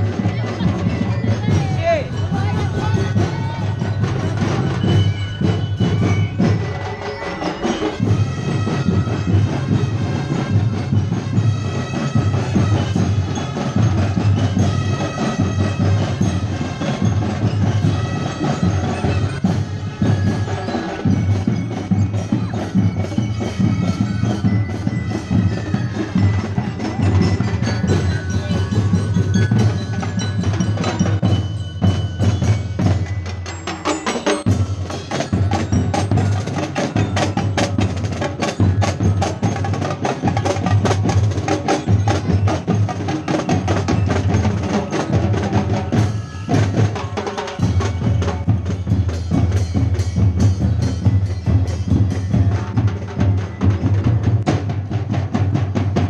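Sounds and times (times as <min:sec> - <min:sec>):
bell lyres ringing a melody: 0:00.0 - 0:56.0.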